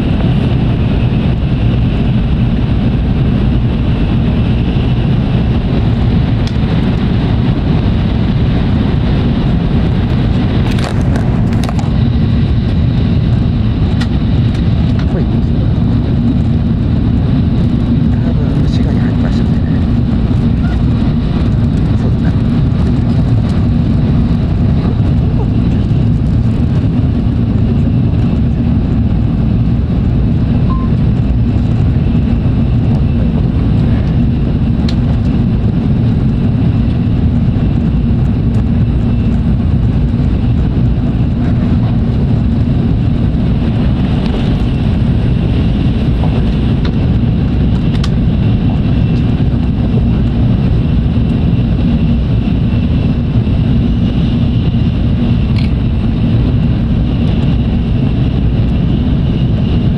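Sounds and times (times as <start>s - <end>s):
faint high whine: 30.6s - 31.0s.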